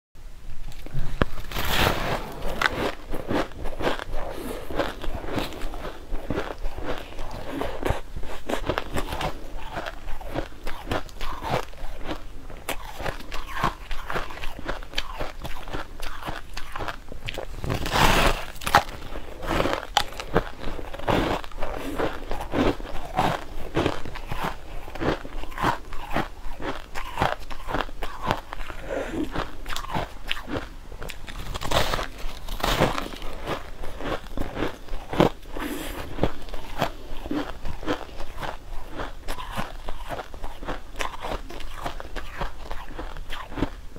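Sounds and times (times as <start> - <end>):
person chewing ice crunches: 1.2 - 43.9.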